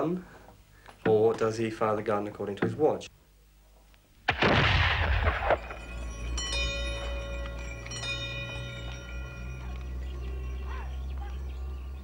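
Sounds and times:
cannon blast: 0:04.3 - 0:05.8.

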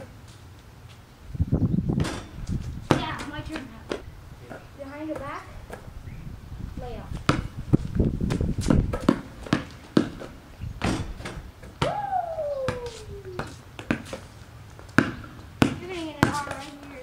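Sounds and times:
basketball shot at hoop: 0:02.0 - 0:03.4, 0:10.8 - 0:12.0
basketball bouncing on concrete: 0:02.0 - 0:04.1, 0:05.0 - 0:05.9, 0:06.9 - 0:12.0, 0:12.6 - 0:17.0
long falling cry: 0:11.8 - 0:13.4.

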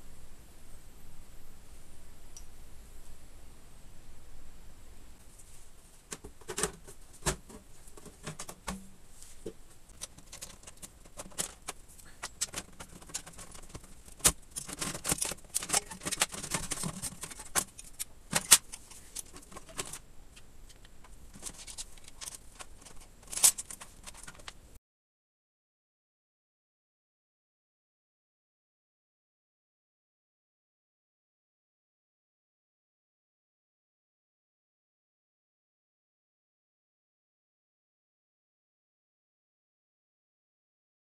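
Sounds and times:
metal parts and cables rattling: 0:05.4 - 0:24.7.

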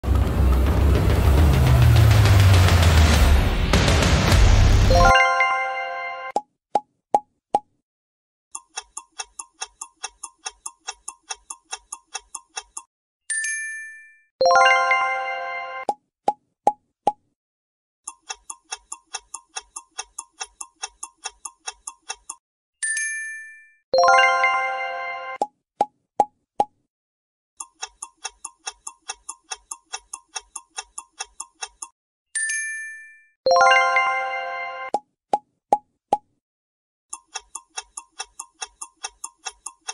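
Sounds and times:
clock ticking: 0:08.5 - 0:12.9, 0:18.0 - 0:22.4, 0:27.6 - 0:32.0, 0:37.1 - 0:39.9.

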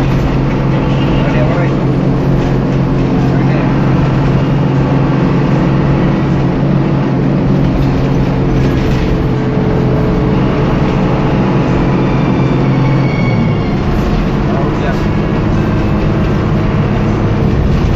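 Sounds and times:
bus engine running: 0:00.0 - 0:17.9
road noise: 0:00.0 - 0:17.9.

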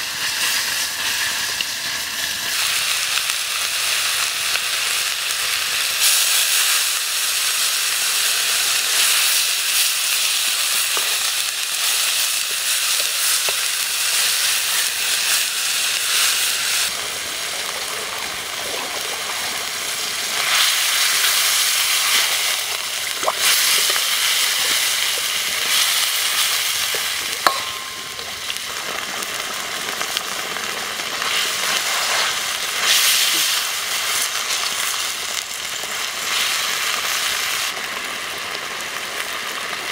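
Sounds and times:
chicken sizzling in a wok: 0:00.0 - 0:39.9
metal ladle clinking on wok: 0:27.4 - 0:28.4.

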